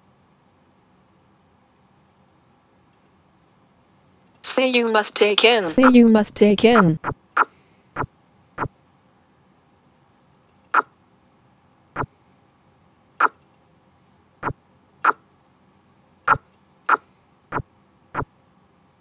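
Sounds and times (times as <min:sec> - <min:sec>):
sharp mouse clicks: 0:16.3 - 0:17.6.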